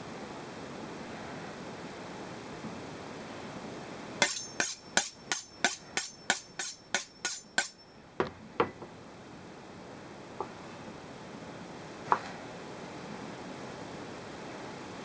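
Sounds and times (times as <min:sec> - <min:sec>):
knife sharpening strokes: 0:04.2 - 0:07.8.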